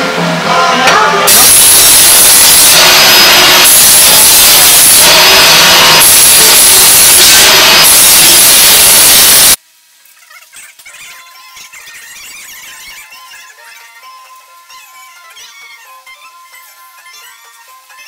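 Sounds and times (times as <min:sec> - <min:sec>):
high whistle: 0:01.3 - 0:09.6.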